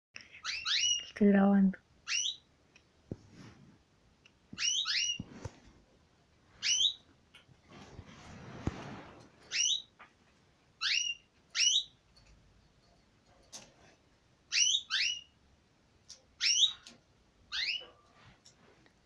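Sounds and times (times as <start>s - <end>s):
canary whistling calls: 0.4s - 1.1s, 2.1s - 2.4s, 4.6s - 5.2s, 6.6s - 7.0s, 9.5s - 9.9s, 10.8s - 12.0s, 14.5s - 15.3s, 16.4s - 16.8s, 17.5s - 18.0s
soft rustling: 3.0s - 9.6s, 18.0s - 19.0s.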